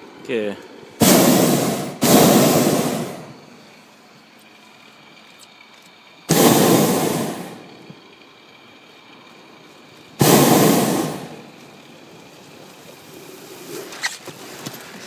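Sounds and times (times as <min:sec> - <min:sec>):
propane burner firing: 0:00.0 - 0:04.3, 0:06.2 - 0:14.7.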